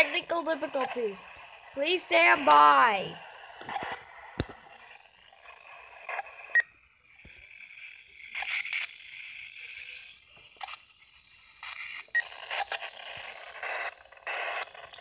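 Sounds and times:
static hiss: 0.0s - 15.0s
clicks: 3.6s - 4.6s.

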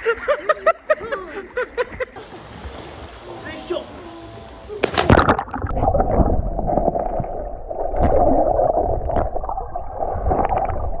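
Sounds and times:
splash into water: 4.8s - 9.4s
underwater bubbling and gurgling: 5.1s - 11.0s.

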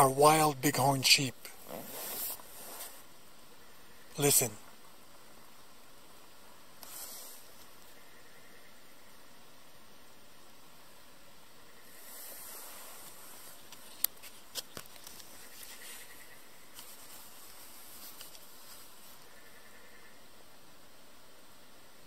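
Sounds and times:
faint steady hiss: 0.0s - 22.0s
brief rustle: 1.6s - 3.0s, 6.8s - 7.7s, 12.0s - 19.3s.

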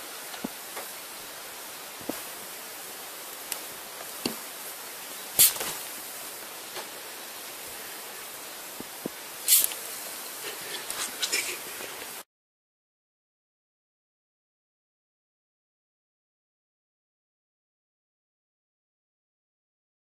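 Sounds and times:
steady hiss: 0.0s - 12.3s.

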